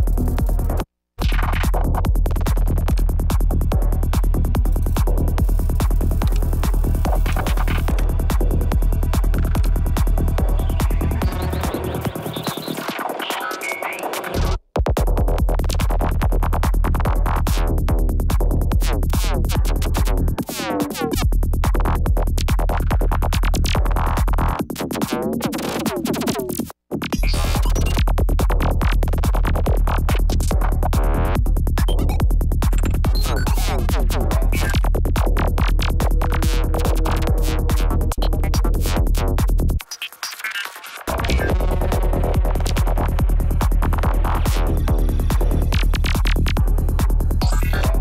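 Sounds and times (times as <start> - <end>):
psytrance music: 0.0 - 14.6, 29.6 - 48.0.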